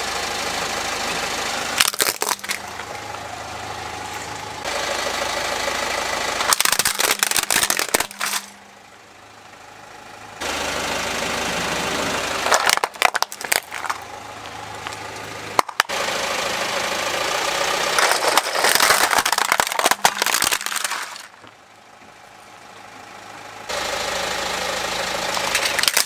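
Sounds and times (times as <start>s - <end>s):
car engine idling: 0.0s - 26.0s
plastic toys cracking under tyre: 1.8s - 2.8s, 6.4s - 8.5s, 12.4s - 14.0s, 15.6s - 15.9s, 18.0s - 21.5s, 25.4s - 26.0s.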